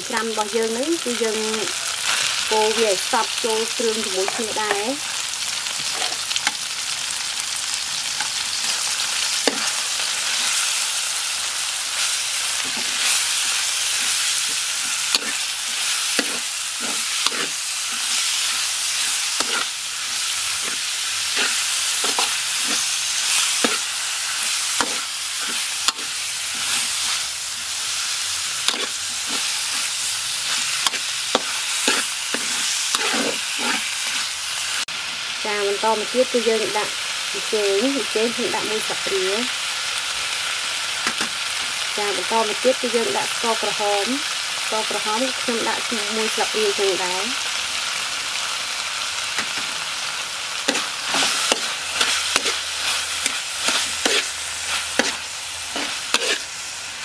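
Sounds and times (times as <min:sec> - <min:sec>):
meat sizzling in hot oil: 0:00.0 - 0:57.0
metal spatula scraping wok: 0:00.2 - 0:06.7, 0:07.6 - 0:34.8, 0:50.6 - 0:56.8.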